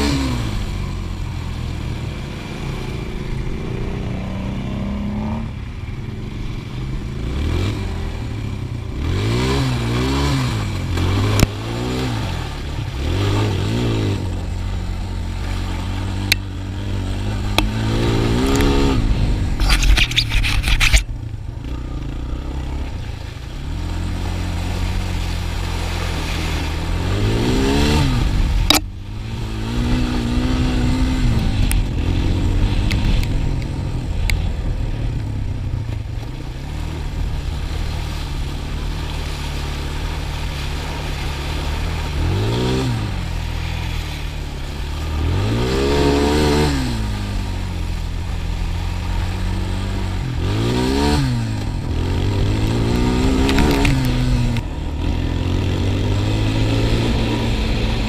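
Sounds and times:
quad bike engine revving: 0.0s - 58.0s.

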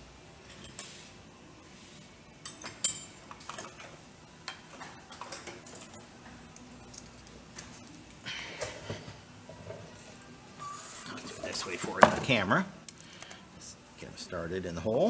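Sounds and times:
metal tools clinking: 0.4s - 0.9s, 2.4s - 6.0s.

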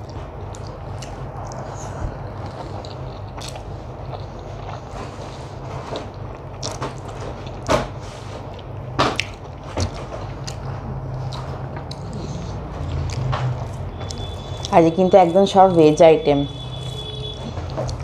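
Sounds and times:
chewing: 0.0s - 7.7s, 8.5s - 14.8s
low steady hum: 0.0s - 18.0s.

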